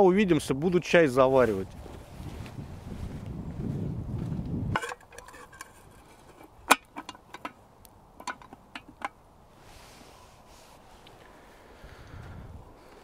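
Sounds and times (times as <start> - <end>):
low rustling rumble: 1.4 - 4.8
campfire crackling and popping: 4.7 - 9.3.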